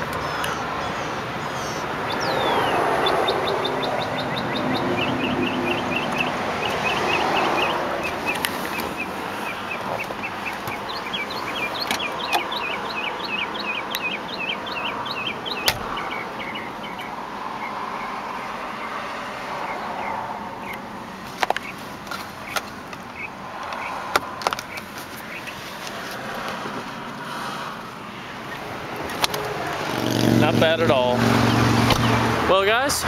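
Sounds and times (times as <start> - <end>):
small birds chirping: 0.0 - 20.9, 21.5 - 24.0, 24.6 - 25.8.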